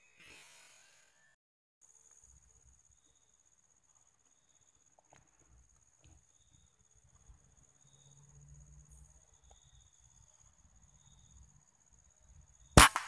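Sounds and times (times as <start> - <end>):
faint high insect tones: 0.0 - 13.0
rifle gunshot crack: 12.8 - 13.0.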